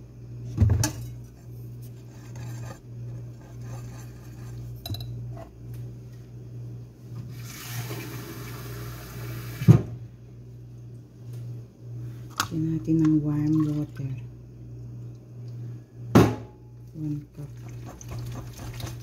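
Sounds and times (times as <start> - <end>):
whisk scraping a glass bowl: 1.5 - 4.8, 17.5 - 19.0.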